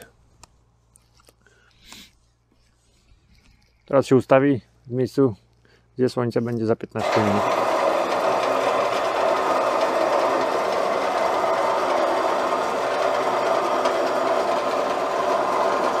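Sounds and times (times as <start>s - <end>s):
mechanical drive humming: 7.0s - 16.0s.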